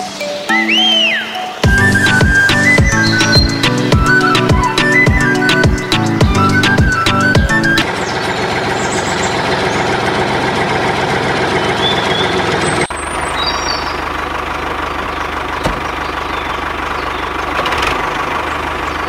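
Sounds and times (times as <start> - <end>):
tractor engine idling: 0.0 - 19.0.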